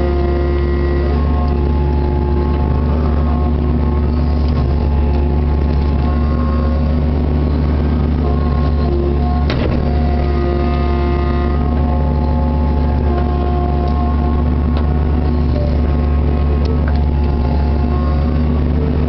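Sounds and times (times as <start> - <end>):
diesel engine running: 0.0 - 19.0
hydraulic whine: 0.0 - 19.0.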